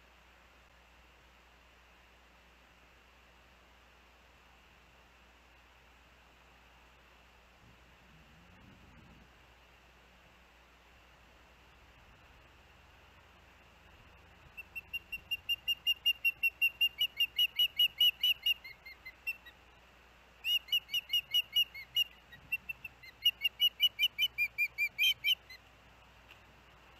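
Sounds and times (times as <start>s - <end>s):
osprey whistled chirps: 14.5s - 19.6s, 20.4s - 25.6s.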